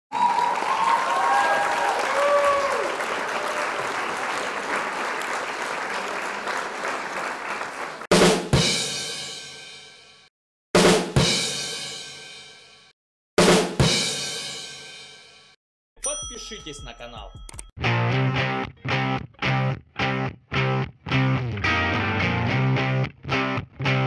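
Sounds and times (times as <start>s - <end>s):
drum and cymbal hits: 8.1s - 10.1s, 10.8s - 15.6s.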